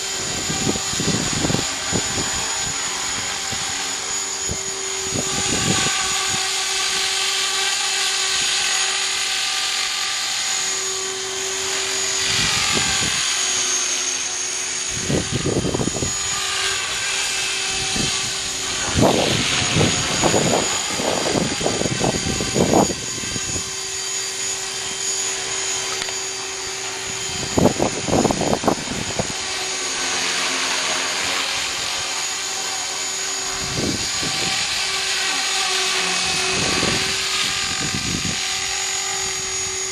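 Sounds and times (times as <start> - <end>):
electric rc helicopter whine: 0.0 - 39.9.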